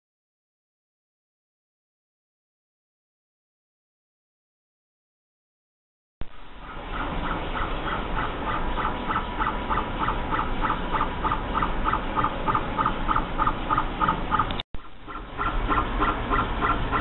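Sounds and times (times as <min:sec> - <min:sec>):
steady high hum: 0:06.2 - 0:17.0.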